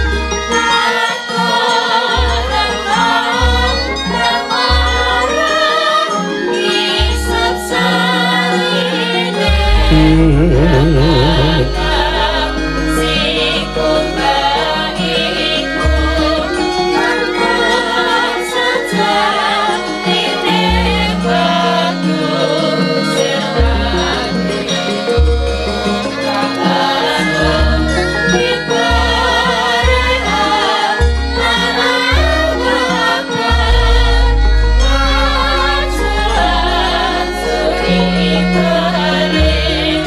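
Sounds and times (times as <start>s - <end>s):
gamelan music: 9.6s - 12.1s
deep low gong notes: 9.6s - 12.2s
women singing with vibrato: 9.6s - 12.3s.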